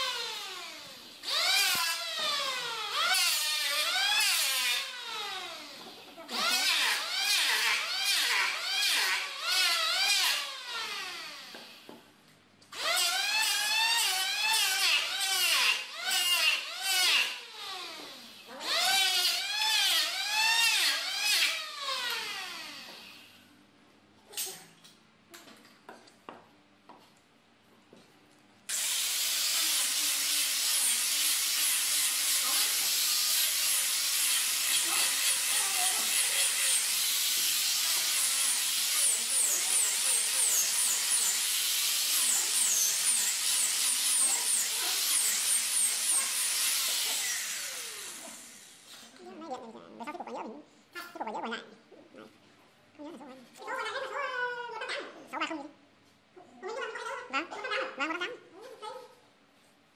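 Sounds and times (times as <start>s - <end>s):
electric hand planer cutting wood: 28.7s - 48.6s
angle grinder sanding wood: 28.7s - 49.1s.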